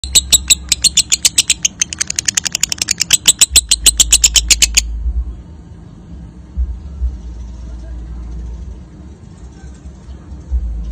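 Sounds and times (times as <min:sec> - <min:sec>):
lovebird rapid high chirps: 0:00.0 - 0:04.9.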